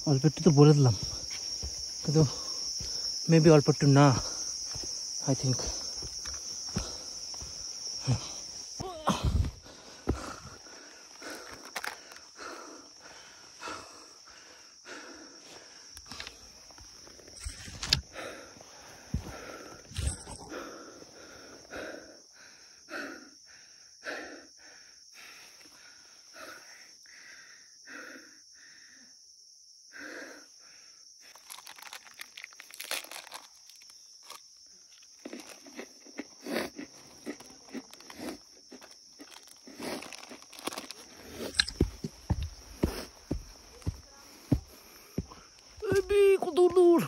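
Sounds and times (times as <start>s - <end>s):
footsteps crunching: 0.9s - 3.2s, 4.0s - 8.0s, 38.7s - 47.0s
man panting hard: 5.6s - 8.5s, 9.1s - 16.0s, 18.1s - 29.1s, 41.1s - 45.8s.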